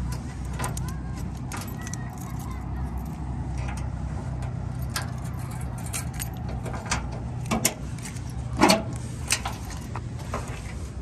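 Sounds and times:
keys jangling in a lock: 0.4s - 3.8s, 4.7s - 6.7s.

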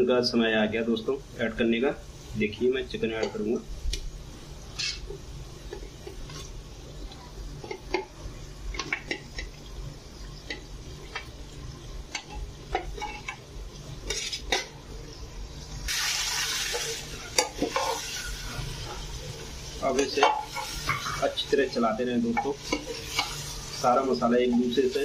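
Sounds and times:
steady low hum: 0.0s - 25.0s
food sizzling: 1.1s - 25.0s.

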